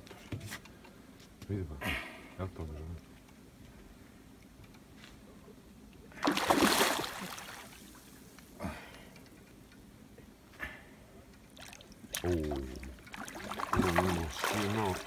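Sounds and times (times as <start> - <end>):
fish splashing in water: 6.2 - 7.8, 11.6 - 15.0.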